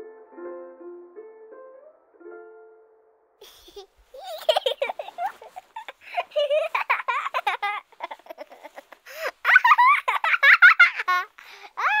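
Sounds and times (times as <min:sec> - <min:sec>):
high-pitched giggling laughter: 0:03.4 - 0:12.0.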